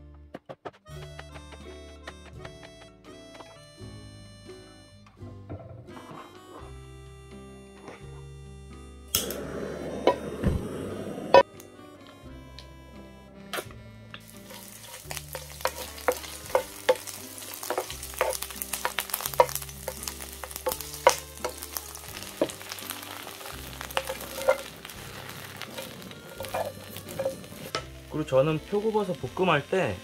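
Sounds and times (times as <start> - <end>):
soft background music: 0.0 - 30.0
spatula scraping a pan: 14.2 - 27.9
oil sizzling in a frying pan: 14.2 - 30.0.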